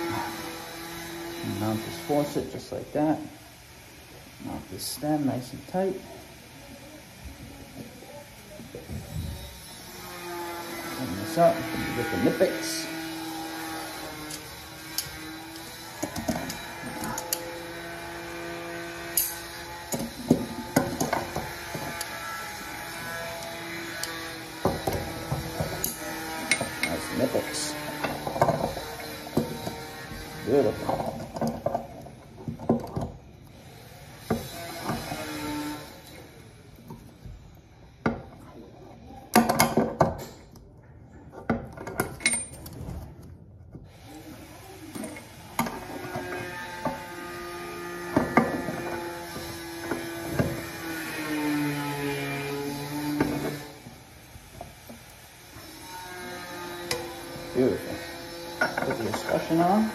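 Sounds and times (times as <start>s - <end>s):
wrench clinking on metal fittings: 19.1s - 20.2s, 41.9s - 42.8s.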